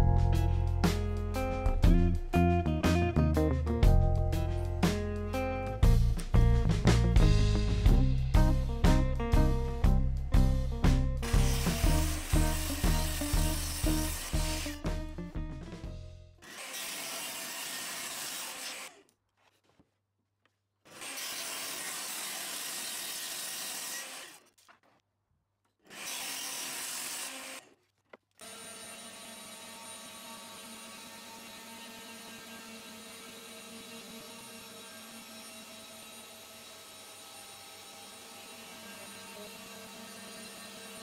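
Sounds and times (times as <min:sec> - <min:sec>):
table saw cutting wood: 0:11.2 - 0:15.2, 0:16.4 - 0:19.0, 0:20.9 - 0:24.5, 0:25.9 - 0:27.8, 0:28.4 - 0:41.0
router spindle running: 0:11.3 - 0:14.8.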